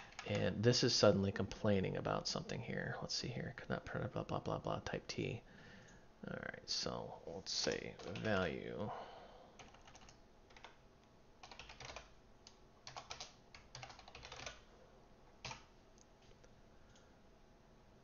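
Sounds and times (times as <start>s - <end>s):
faint keyboard typing: 0.0s - 0.6s, 7.6s - 8.6s, 9.6s - 10.8s, 11.4s - 14.7s, 15.4s - 17.1s.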